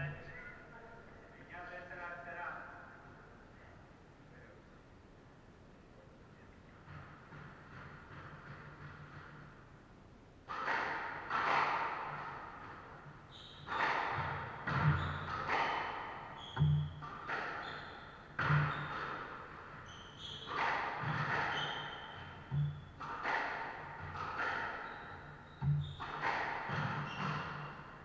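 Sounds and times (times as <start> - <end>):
squash ball cracking off rackets: 10.4 - 28.0
sneaker squeaks on wooden floor: 13.2 - 28.0.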